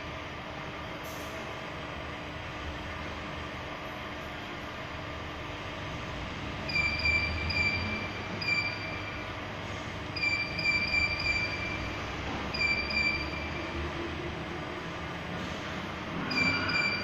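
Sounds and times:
short high beeps: 6.7 - 9.2, 10.2 - 13.8, 16.3 - 17.0.

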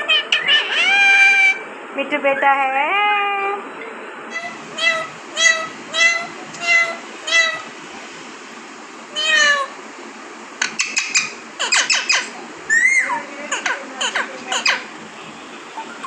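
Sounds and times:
parakeet mewing: 0.0 - 1.7, 4.3 - 7.8, 9.1 - 9.8, 10.6 - 16.0.

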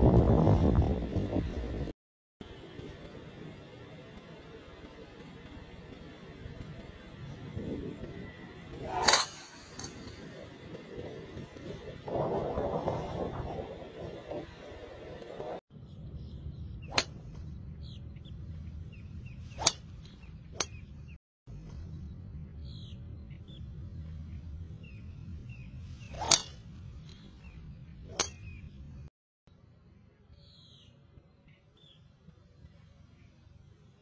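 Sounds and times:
low steady background rumble: 0.0 - 34.0
golf clubs striking balls: 8.8 - 10.4, 16.9 - 17.4, 19.5 - 20.9, 26.0 - 27.3, 28.0 - 28.6
small birds chirping: 15.8 - 26.4, 27.0 - 29.0, 30.3 - 33.4.

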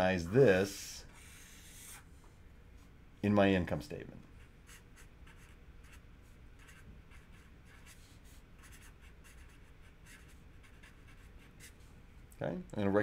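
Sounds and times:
marker writing on paper: 1.1 - 2.0, 4.7 - 6.0, 6.6 - 11.8.

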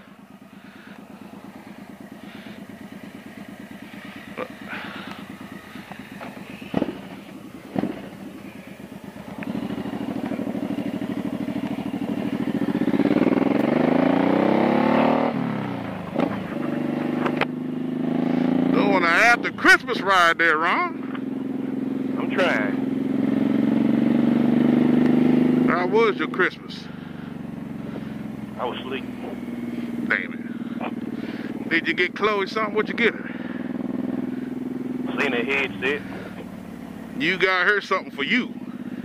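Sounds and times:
motorcycle engine idling and revving: 0.0 - 39.0.

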